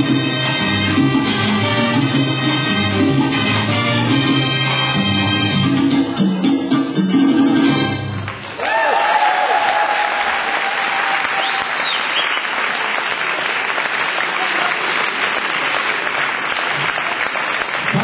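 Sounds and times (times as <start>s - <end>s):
audience applauding: 8.2s - 18.0s
rising-and-falling whistle: 11.4s - 12.4s.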